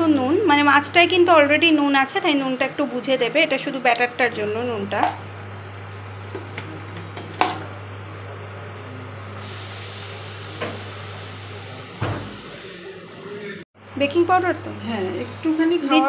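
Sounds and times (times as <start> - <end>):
even hiss: 9.3 - 12.9.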